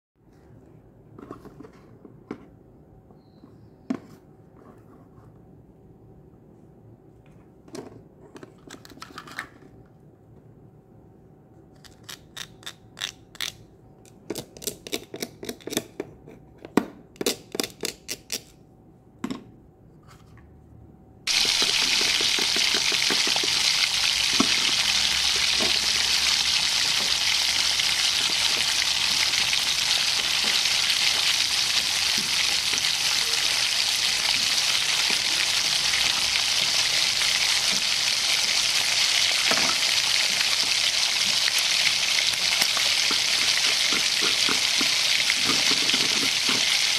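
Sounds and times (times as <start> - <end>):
plastic toys clicking and clacking: 21.3 - 23.7, 42.6 - 46.9
frying sizzle: 21.3 - 46.9.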